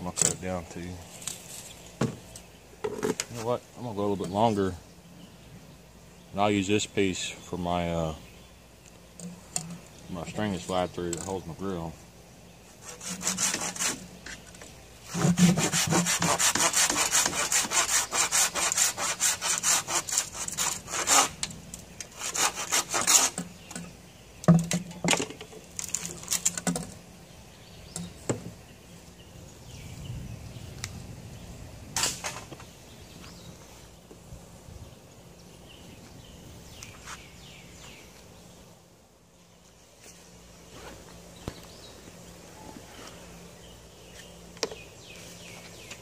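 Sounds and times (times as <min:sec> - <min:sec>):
hand saw cutting bamboo: 0:12.8 - 0:14.2, 0:15.1 - 0:21.4, 0:22.1 - 0:23.5.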